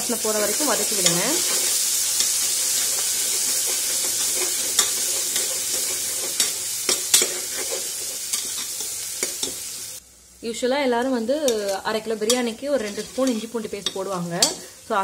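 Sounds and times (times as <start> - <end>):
onions sizzling in hot oil: 0.0 - 15.0
metal ladle scraping pot: 1.0 - 9.6, 12.3 - 14.7.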